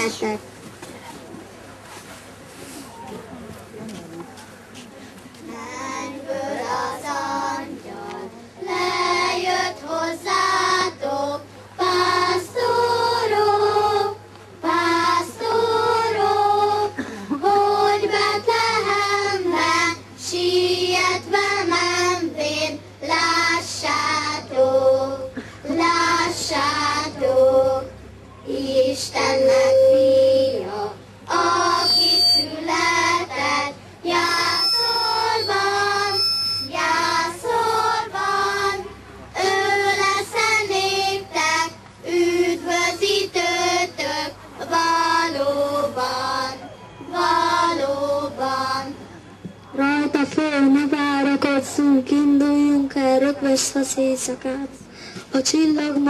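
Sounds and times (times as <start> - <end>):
children singing: 8.7 - 27.9, 28.5 - 49.0.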